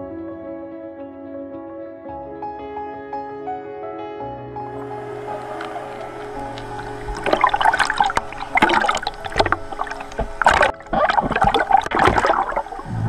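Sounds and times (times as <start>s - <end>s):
water splashing and sloshing: 4.8s - 13.0s.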